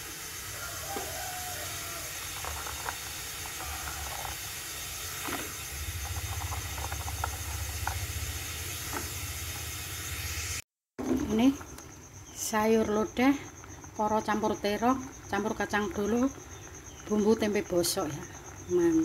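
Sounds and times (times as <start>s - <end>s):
gas burner hiss: 0.0s - 10.6s
water rumbling near boil: 0.0s - 10.6s
warming water ticks and pops: 0.9s - 9.7s, 11.5s - 19.0s.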